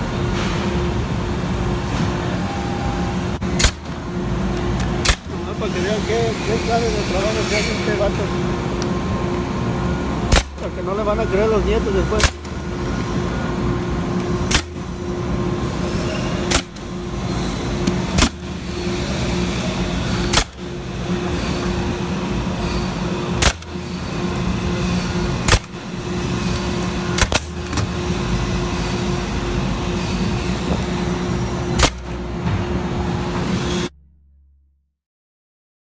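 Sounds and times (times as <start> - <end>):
steady mechanical hum: 0.0 - 34.0
nail gun shots: 3.6 - 3.9, 5.0 - 5.3, 10.3 - 10.6, 12.2 - 12.5, 14.5 - 14.8, 16.5 - 16.8, 18.2 - 18.4, 20.3 - 20.6, 23.4 - 23.7, 25.5 - 25.8, 27.2 - 27.5, 31.8 - 32.1.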